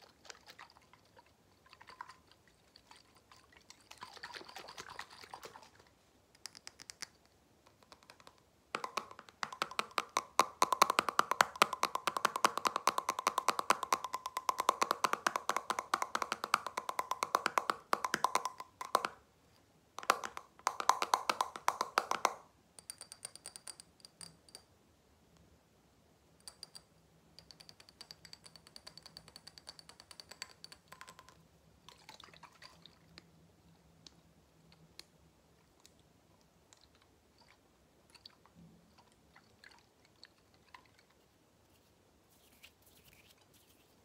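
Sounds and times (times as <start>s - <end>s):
tapping on glass bottle: 7.8s - 19.2s, 20.0s - 24.7s, 26.4s - 31.4s
tapping on metal jar lid: 8.8s - 19.2s.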